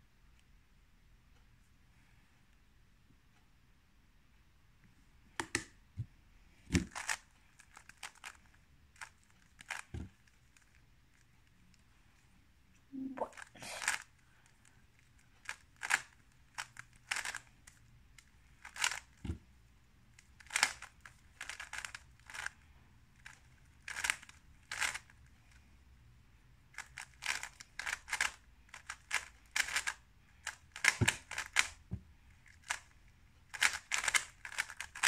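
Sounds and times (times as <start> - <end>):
speed cube clicking turns: 6.7 - 10.8, 13.4 - 19.3, 20.2 - 25.6, 26.8 - 35.0.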